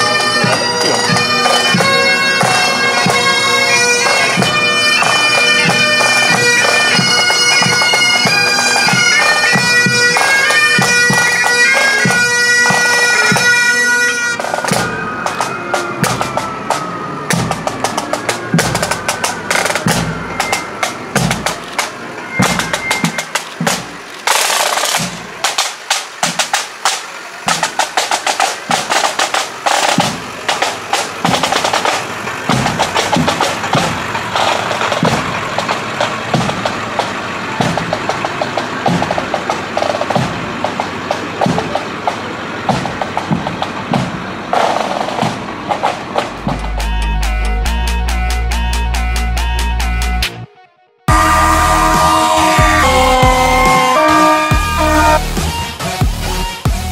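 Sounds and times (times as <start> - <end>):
snare drum rolls: 0.0 - 13.7, 14.4 - 50.4, 51.1 - 56.9
steady bass drum beat: 46.2 - 50.4, 51.1 - 56.9.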